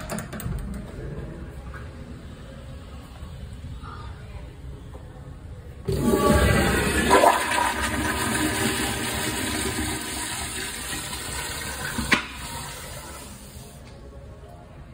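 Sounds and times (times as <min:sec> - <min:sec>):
toilet flushing: 0:05.9 - 0:13.8.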